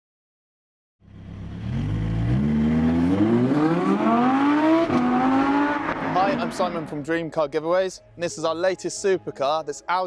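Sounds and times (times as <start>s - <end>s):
car engine accelerating: 1.0s - 7.0s.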